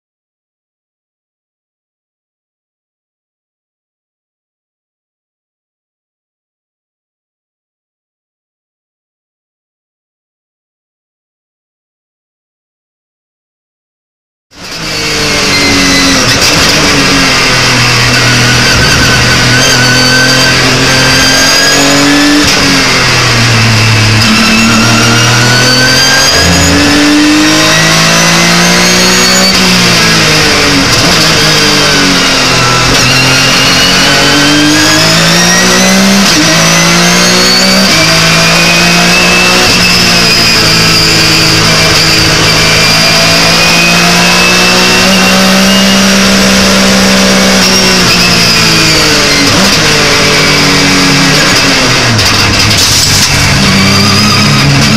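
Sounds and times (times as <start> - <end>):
race car engine revving: 14.6 - 54.9.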